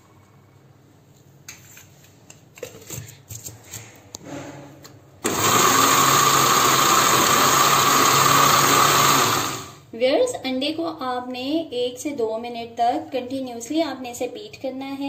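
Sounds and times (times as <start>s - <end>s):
blender motor running: 5.2s - 9.8s.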